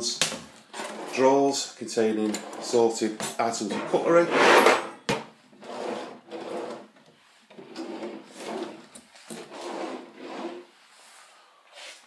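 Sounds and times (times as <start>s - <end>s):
kitchen drawers sliding open and shut: 0.7s - 1.4s, 2.2s - 10.7s.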